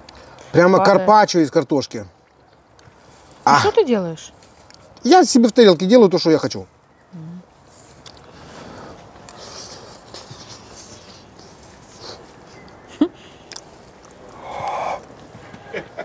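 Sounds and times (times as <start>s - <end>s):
soft chewing: 2.2s - 3.4s, 4.3s - 5.0s, 6.8s - 15.3s
breathy rush: 14.1s - 15.7s.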